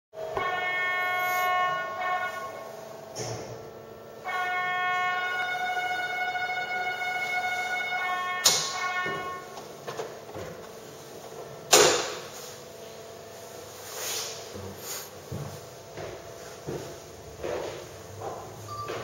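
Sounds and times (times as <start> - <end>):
warning bell ringing: 0.2 - 2.8.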